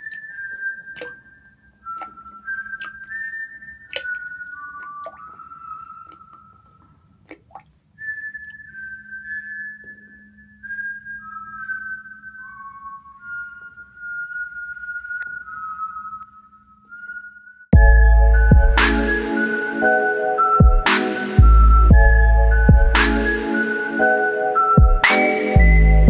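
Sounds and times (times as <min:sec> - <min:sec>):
whistled melody: 0:00.0 - 0:07.0, 0:07.9 - 0:26.0.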